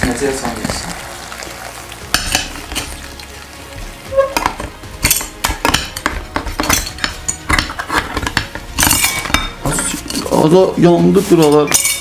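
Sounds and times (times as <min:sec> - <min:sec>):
food sizzling in can: 0:00.0 - 0:12.0
fork clinking on tin can: 0:04.4 - 0:10.4, 0:11.5 - 0:12.0.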